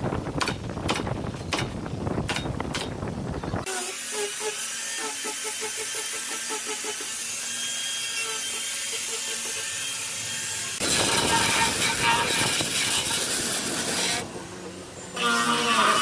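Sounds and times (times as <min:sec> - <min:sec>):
electric sander sanding wood: 0:08.1 - 0:16.0.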